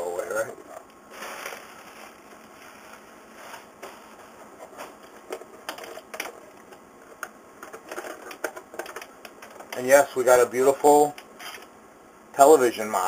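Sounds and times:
bubble wrap rustling: 1.1s - 5.3s.

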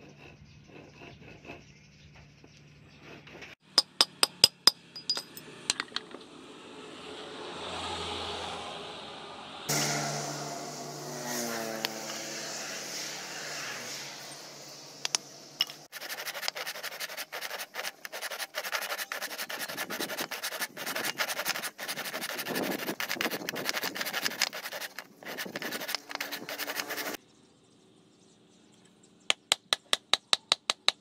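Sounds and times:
hand saw cutting wood: 15.8s - 27.2s.

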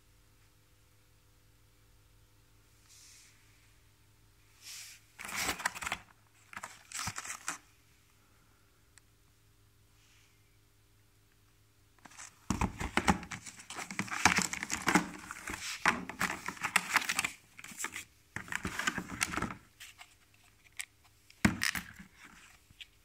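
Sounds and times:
plastic packaging crinkling: 5.2s - 7.7s, 12.0s - 20.9s.

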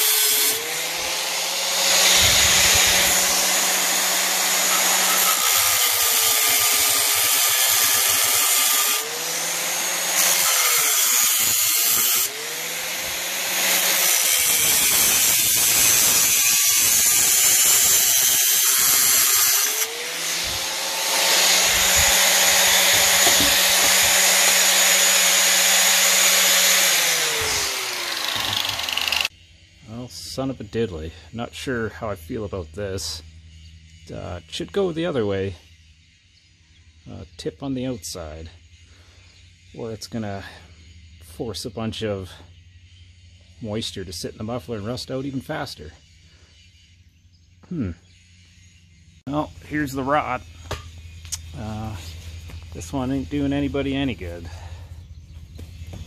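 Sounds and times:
angle grinder cutting metal: 0.0s - 29.3s.

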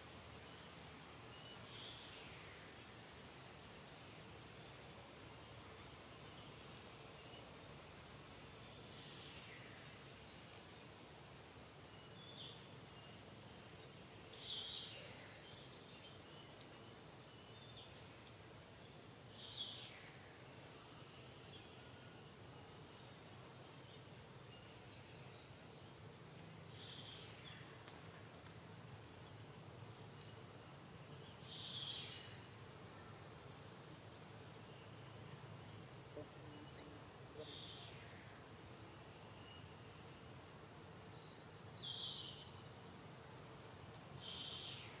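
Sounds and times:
insects trilling: 0.0s - 45.0s.

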